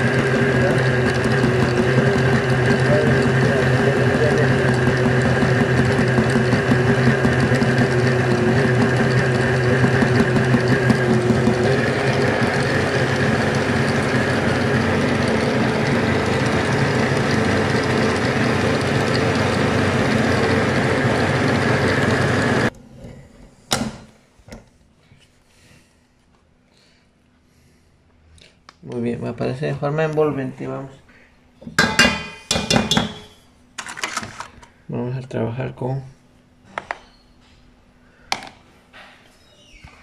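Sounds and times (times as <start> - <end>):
stand mixer motor running: 0.0 - 22.7
steel bowl and utensils knocking: 31.7 - 33.4.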